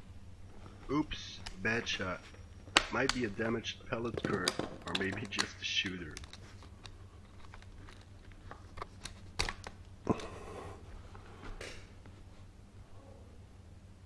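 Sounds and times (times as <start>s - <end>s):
low steady hum: 0.0s - 14.0s
air rifle handling clicks and clatter: 4.0s - 9.7s.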